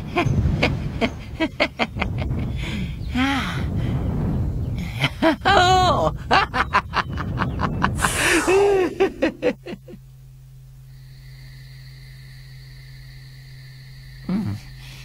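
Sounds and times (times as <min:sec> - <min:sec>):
low rumble: 0:00.0 - 0:10.8
cartoon villain laugh: 0:05.0 - 0:10.0.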